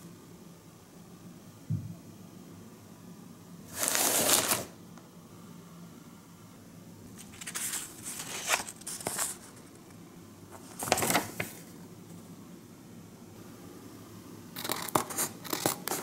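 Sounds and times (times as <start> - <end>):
packaging rustling: 3.7 - 4.7, 7.2 - 9.7, 10.6 - 11.7.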